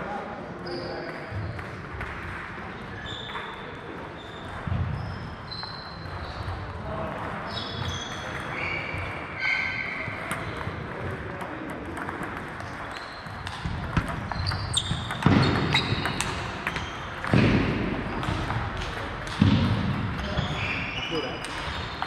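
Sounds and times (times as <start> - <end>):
faint echoing voices: 0.0 - 22.0
table tennis balls clicking: 10.2 - 20.2, 21.4 - 22.0.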